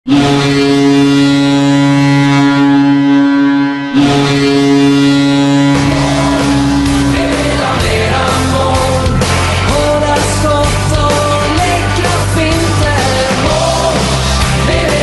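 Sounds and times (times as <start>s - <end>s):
goal horn blasts: 0.1s - 7.6s
rock song with steady beat: 4.0s - 15.0s.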